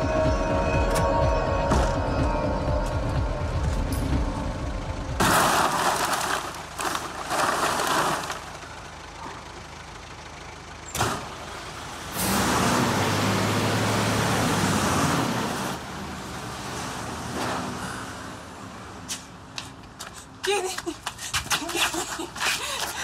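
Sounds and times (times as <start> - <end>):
recycling truck running: 0.0 - 23.0
plastic bottles crashing and rattling: 5.2 - 8.5.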